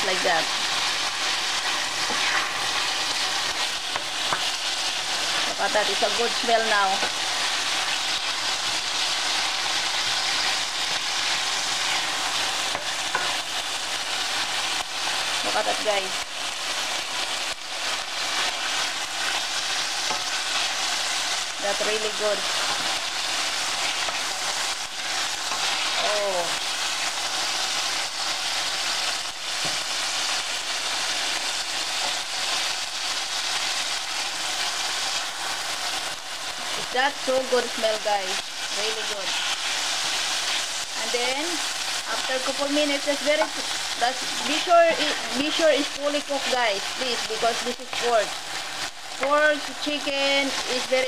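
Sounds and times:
meat sizzling in hot oil: 0.0s - 51.0s
wooden spoon scraping: 1.5s - 6.0s, 21.8s - 26.5s, 42.5s - 45.4s.

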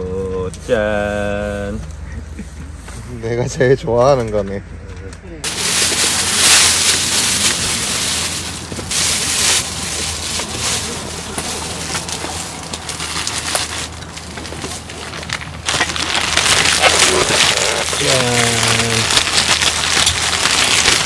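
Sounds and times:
plastic bag rustling: 5.4s - 21.0s.

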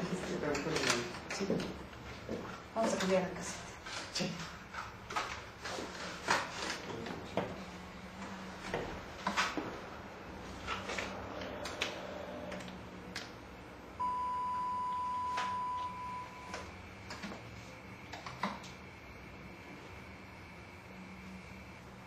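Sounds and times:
faint high steady tone: 14.0s - 16.6s
high-pitched beep: 14.0s - 16.6s.

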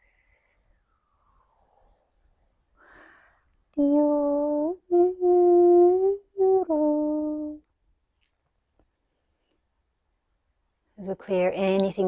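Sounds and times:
woman breathing softly: 0.0s - 3.7s
woman singing wordless notes: 3.8s - 7.6s.

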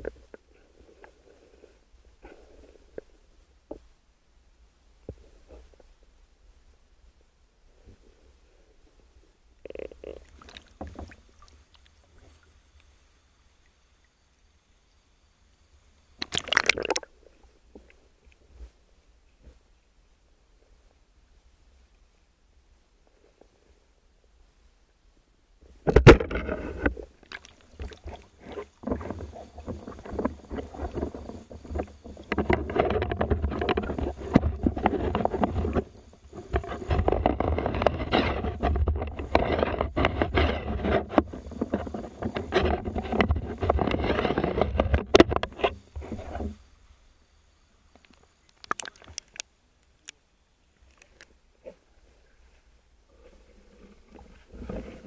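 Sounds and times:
water splashing and churning: 16.2s - 17.1s, 27.2s - 35.8s.

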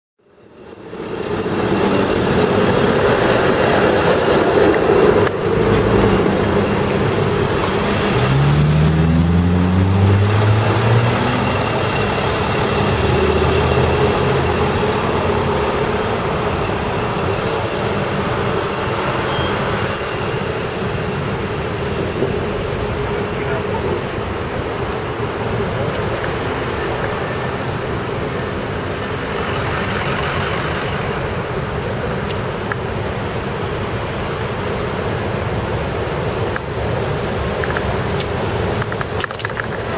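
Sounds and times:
street traffic rumble: 0.2s - 39.9s
vehicle engine accelerating: 5.3s - 17.5s.

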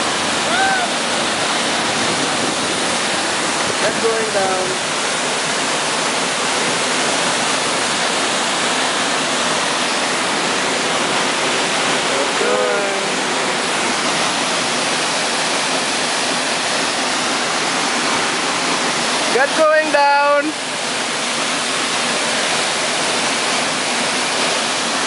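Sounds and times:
waterfall rushing: 0.0s - 25.0s
person speaking: 12.0s - 13.5s, 19.3s - 20.6s.

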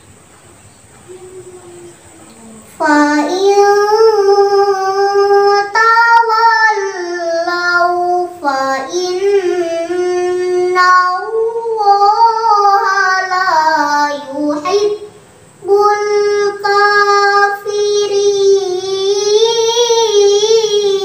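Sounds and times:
girl reciting melodically: 0.9s - 21.0s.

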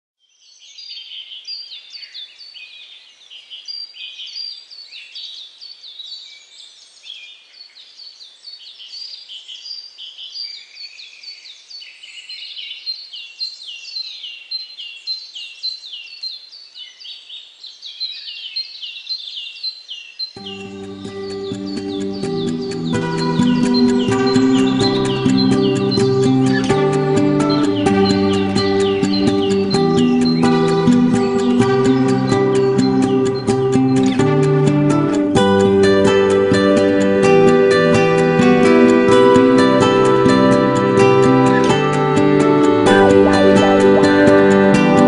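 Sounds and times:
songbirds chirping and singing: 0.2s - 45.0s
music: 20.4s - 45.0s.

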